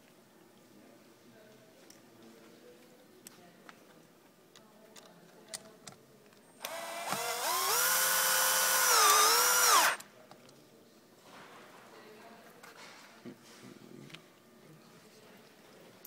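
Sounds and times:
drill light clicks: 6.6s - 10.0s
power drill motor whining: 6.6s - 10.0s.

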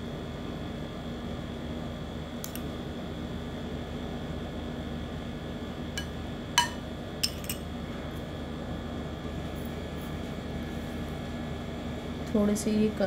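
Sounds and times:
fan-like hum: 0.0s - 13.0s
spoon clinking against glass dish: 6.0s - 7.6s.

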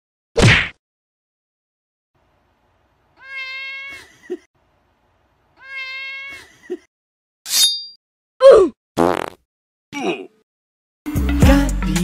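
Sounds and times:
cat meowing: 3.2s - 4.1s, 5.6s - 6.5s.

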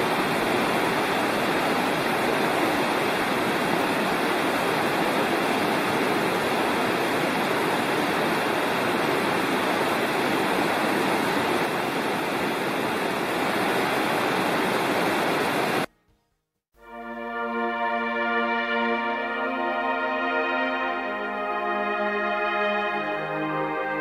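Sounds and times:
stream rushing: 0.0s - 15.9s.

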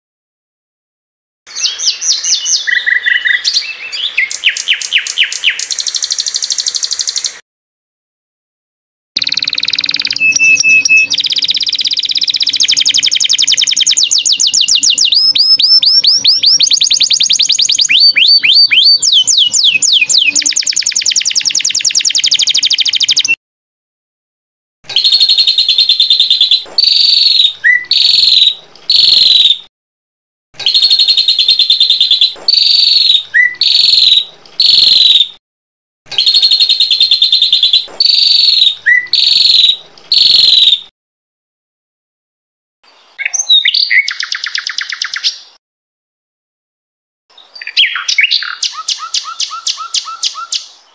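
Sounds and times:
sharp bird chirps: 1.5s - 7.4s, 9.2s - 23.4s, 24.9s - 29.7s, 30.6s - 35.4s, 36.1s - 40.9s, 43.2s - 45.6s, 47.3s - 50.8s
songbirds trilling: 9.2s - 23.4s, 24.9s - 29.5s, 30.6s - 35.2s, 36.2s - 40.8s, 47.4s - 50.7s.

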